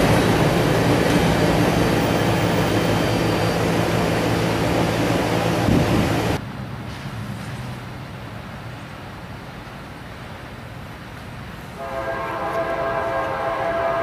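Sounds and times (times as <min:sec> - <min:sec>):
loud engine rumble: 0:00.0 - 0:07.8
distant road traffic: 0:00.0 - 0:14.0.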